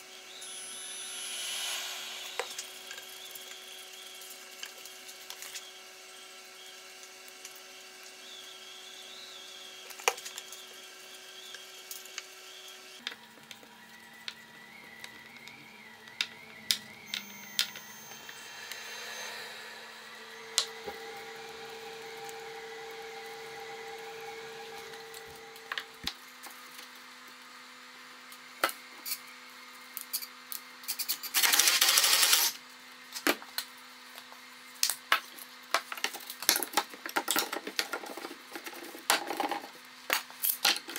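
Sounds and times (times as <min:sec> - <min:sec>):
steady low drone: 0:00.4 - 0:03.7, 0:17.3 - 0:26.1
noisy rushing burst: 0:00.4 - 0:03.8, 0:18.0 - 0:26.0.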